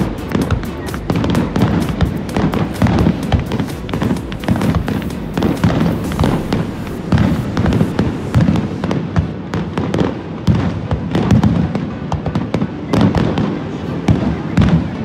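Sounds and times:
fireworks bursting: 0:00.0 - 0:15.0
low rumble: 0:03.1 - 0:09.1.

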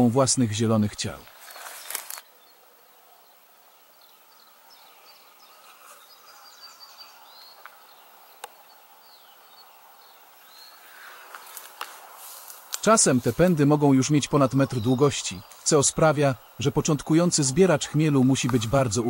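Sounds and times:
small birds chirping: 0:00.0 - 0:19.0.

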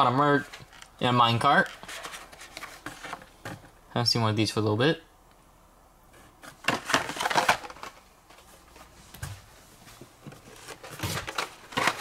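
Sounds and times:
plastic and card packaging rustling: 0:00.2 - 0:03.7, 0:06.2 - 0:09.0, 0:09.9 - 0:12.0.

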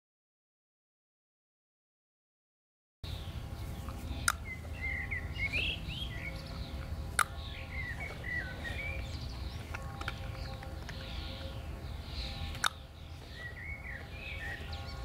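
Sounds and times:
songbirds chirping: 0:03.0 - 0:15.0
dog-training clicker clicks: 0:04.2 - 0:04.4, 0:12.5 - 0:12.8.

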